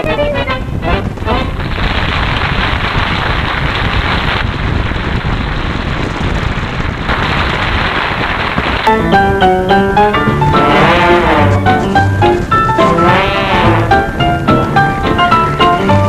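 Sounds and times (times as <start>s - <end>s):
air buffeting the microphone: 0.0s - 16.0s
wind and road noise: 0.0s - 16.0s.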